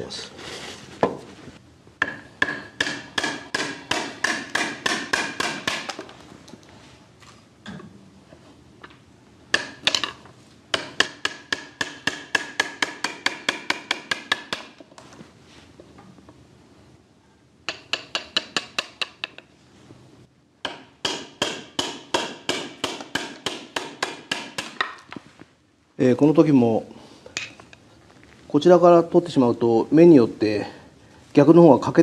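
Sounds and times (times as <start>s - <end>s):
hammer striking chisel: 2.0s - 6.1s, 9.5s - 14.9s, 17.7s - 19.5s, 20.6s - 25.1s.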